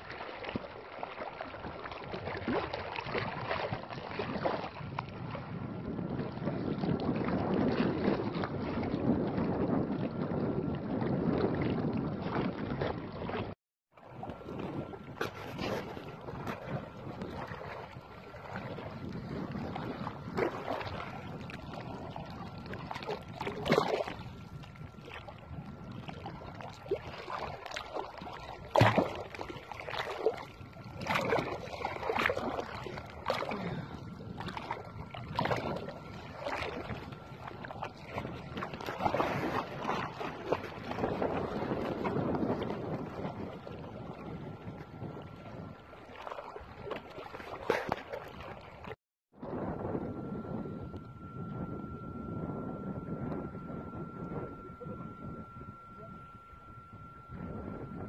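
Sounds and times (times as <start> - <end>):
water splashing: 0.0 - 5.4, 12.2 - 44.3, 45.1 - 49.0
wind on microphone: 1.4 - 58.0.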